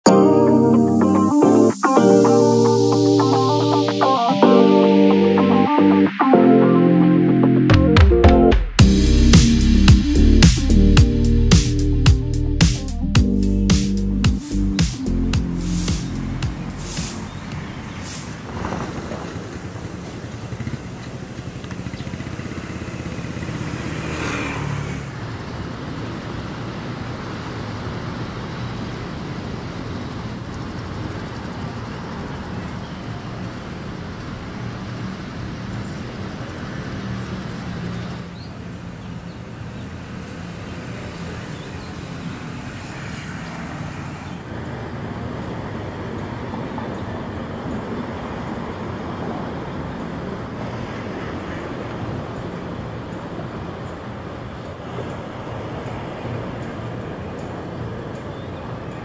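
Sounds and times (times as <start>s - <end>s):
road traffic passing: 0.0s - 59.0s
loud vehicle passing: 8.8s - 26.9s.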